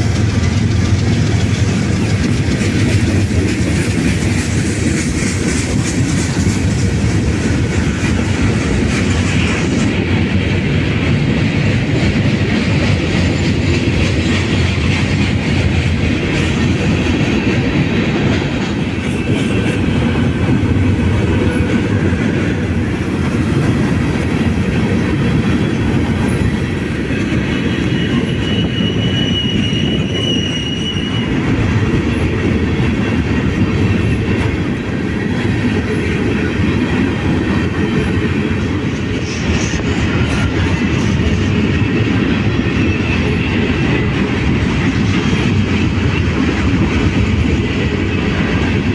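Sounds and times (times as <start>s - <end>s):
train wheels on rails: 0.0s - 48.9s
wheel squeal: 27.7s - 31.4s.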